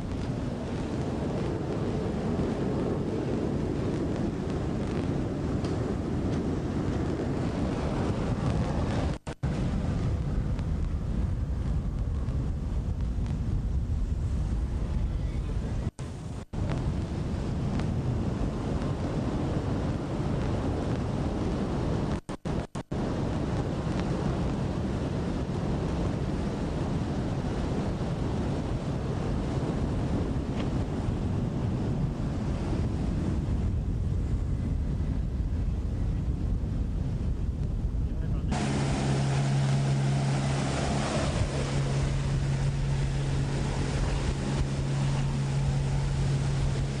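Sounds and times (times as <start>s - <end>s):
boat engine hum: 0.0s - 31.2s, 38.3s - 47.0s
water rushing from hull: 0.0s - 33.1s, 38.5s - 47.0s
wind buffeting microphone: 0.0s - 47.0s
water rushing: 38.5s - 47.0s.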